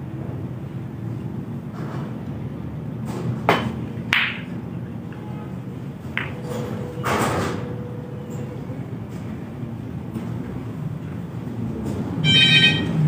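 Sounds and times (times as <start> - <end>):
snooker balls clacking: 3.4 - 5.2, 6.1 - 7.7
cue tip striking ball: 3.5 - 4.6, 6.1 - 7.0.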